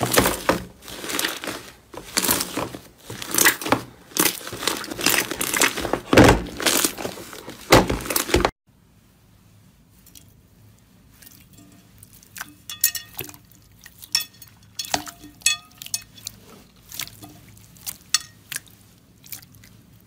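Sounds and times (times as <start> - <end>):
slime crackling and squishing: 0.0 - 8.5.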